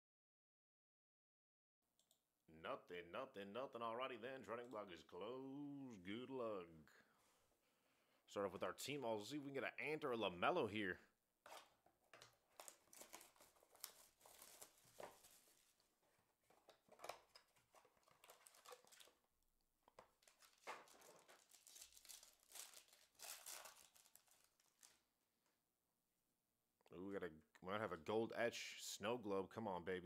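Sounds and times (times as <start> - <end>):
foil pack crinkling: 12.1 - 15.9, 16.5 - 19.3, 20.0 - 25.1
card packaging tearing: 12.5 - 15.6, 16.8 - 19.2, 20.2 - 25.0.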